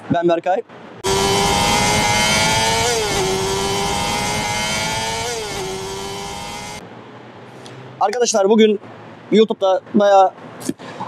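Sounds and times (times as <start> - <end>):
high-revving engine: 1.0 - 6.8.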